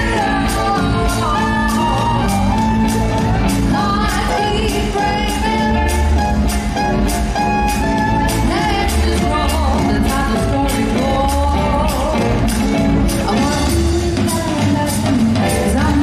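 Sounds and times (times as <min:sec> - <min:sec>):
ballroom dance music: 0:00.0 - 0:16.0
person singing: 0:00.0 - 0:16.0.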